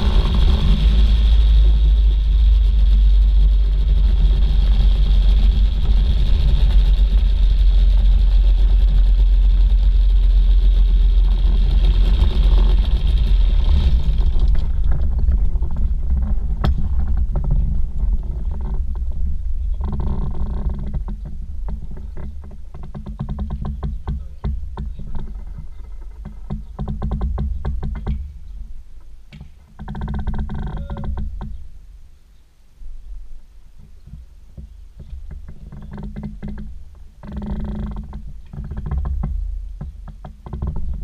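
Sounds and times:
pusher engine and propeller running: 0.0 - 15.2.

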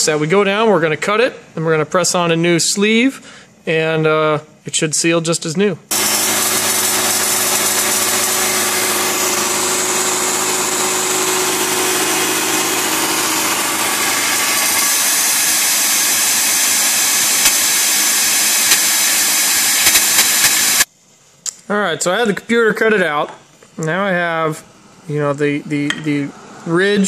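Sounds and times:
milling machine cutting metal: 5.9 - 20.9.

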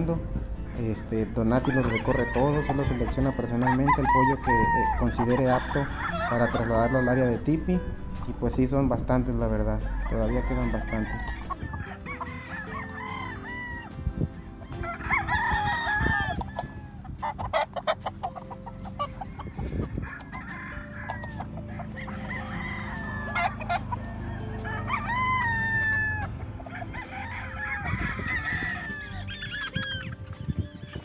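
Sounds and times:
chickens clucking: 0.0 - 31.0
roosters crowing: 0.0 - 31.0.

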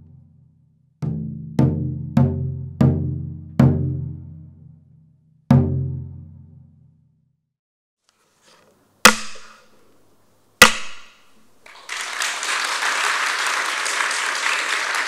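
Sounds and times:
audience applause: 11.6 - 15.0.

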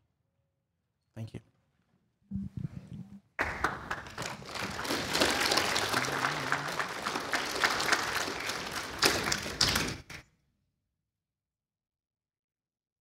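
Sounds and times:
congregation applauding: 3.4 - 10.2.

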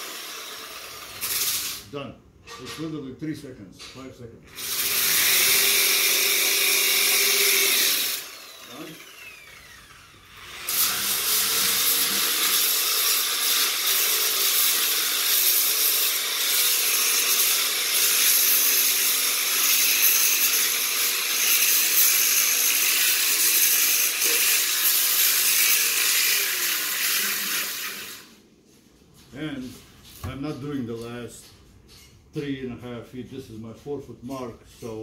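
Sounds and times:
power tool grinding wood: 4.6 - 28.4.

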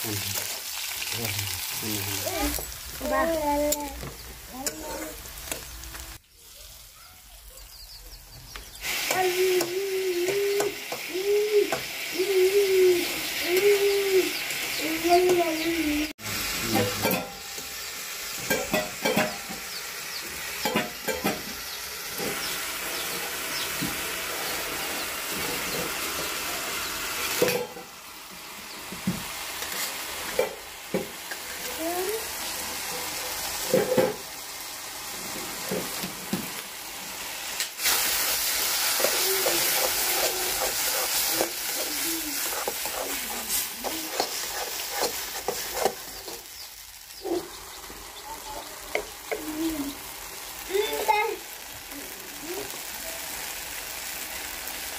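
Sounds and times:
food sizzling in a pan: 0.0 - 54.9
metal spatula scraping a pan: 37.8 - 46.5.

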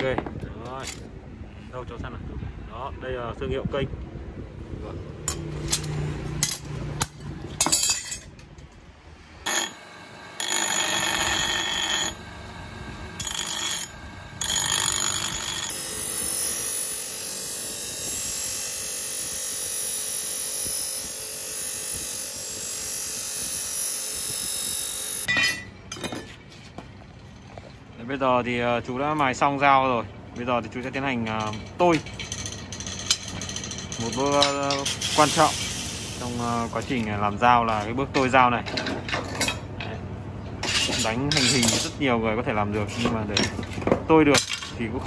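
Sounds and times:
high ringing tone: 9.4 - 16.3
grinding wheel grinding steel: 9.4 - 25.6.

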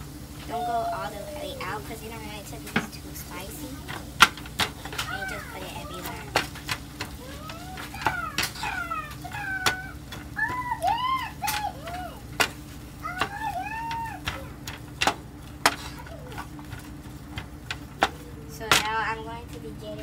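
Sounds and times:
sharp clicks and knocks: 6.0 - 19.0.

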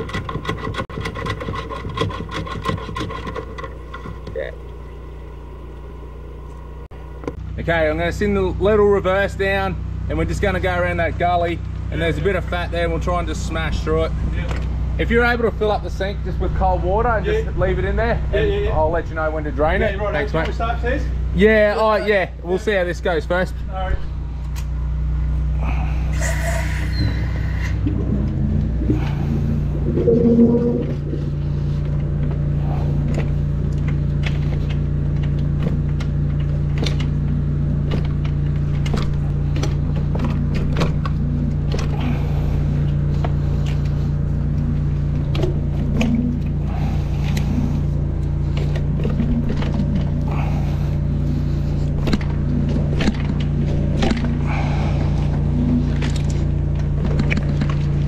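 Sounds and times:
hose clicking and scraping in pipe: 0.0 - 4.4
drain jetter humming: 0.0 - 20.6, 24.0 - 58.0.

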